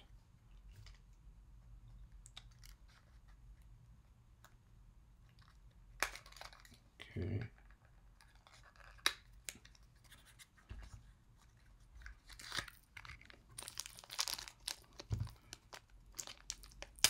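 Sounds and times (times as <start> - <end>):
plastic packaging crinkling: 12.1 - 17.0.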